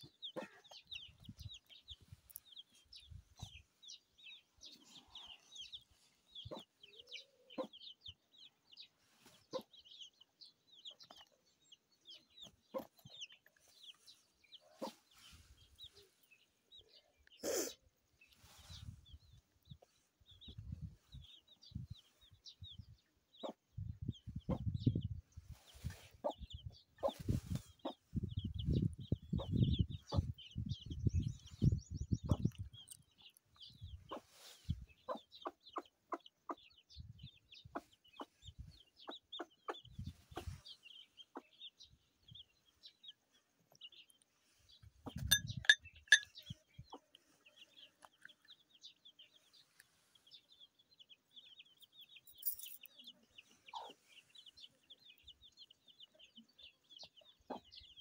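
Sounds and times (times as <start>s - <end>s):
chickens clucking: 0.0s - 4.0s, 4.6s - 8.5s, 9.2s - 11.5s, 12.1s - 16.2s, 23.4s - 25.1s, 25.7s - 31.0s, 31.6s - 41.8s, 44.8s - 49.7s, 53.1s - 58.0s.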